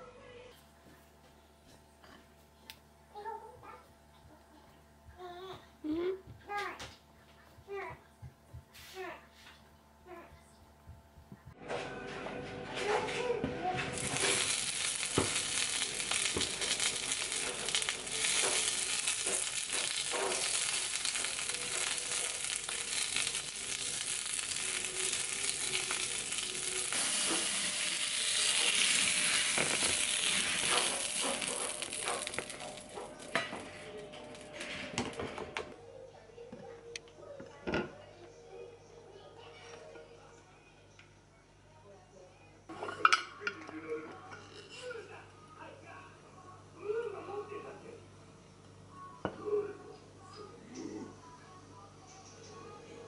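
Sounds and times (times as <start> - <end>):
sausages sizzling in a frying pan: 13.9 - 33.3.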